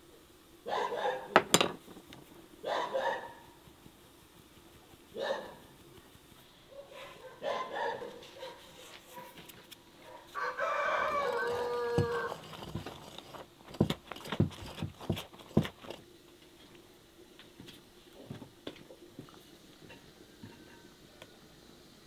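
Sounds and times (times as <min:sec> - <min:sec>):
rooster crowing: 0:10.3 - 0:12.5.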